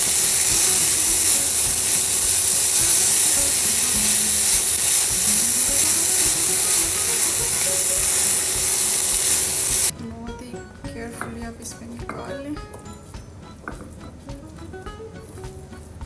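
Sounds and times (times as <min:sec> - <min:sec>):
food sizzling in a pan: 0:00.0 - 0:09.9.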